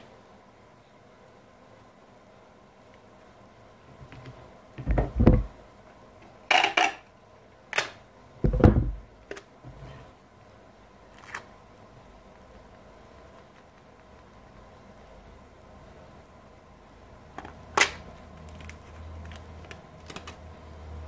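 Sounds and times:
dull knocks on workbench: 4.8s - 5.5s, 8.4s - 9.0s.

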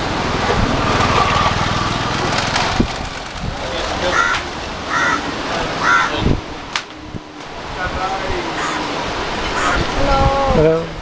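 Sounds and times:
crow cawing: 4.0s - 6.2s, 8.5s - 8.9s, 9.5s - 9.8s.

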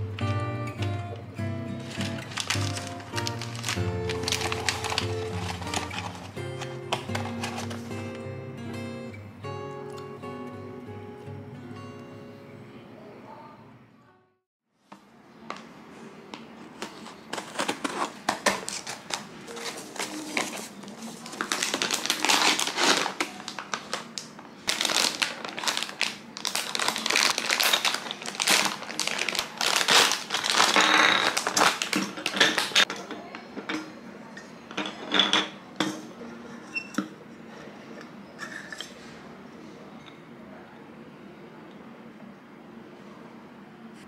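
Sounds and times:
plastic bag crinkling: 1.8s - 8.0s, 16.8s - 32.9s
cardboard box tearing: 2.0s - 7.8s, 16.9s - 23.7s.

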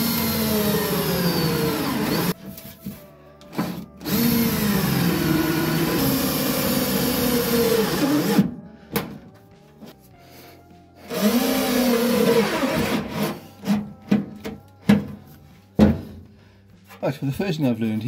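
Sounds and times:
cordless drill driving screws: 0.0s - 2.4s, 4.0s - 8.4s, 11.1s - 13.3s.

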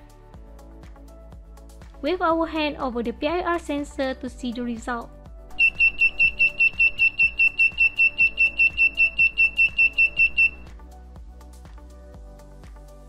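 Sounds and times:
background music: 0.0s - 13.0s
high-pitched buzzer beeps: 5.6s - 10.7s.

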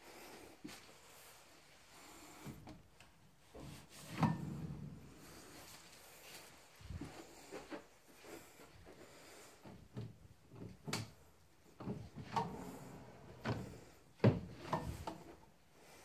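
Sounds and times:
drawers knocking and clicking: 11.8s - 15.3s.

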